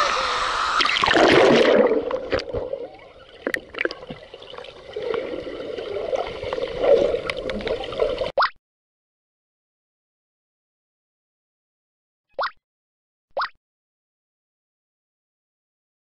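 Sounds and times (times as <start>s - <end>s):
water splashing: 0.1s - 8.5s
water bubbling: 0.8s - 8.5s.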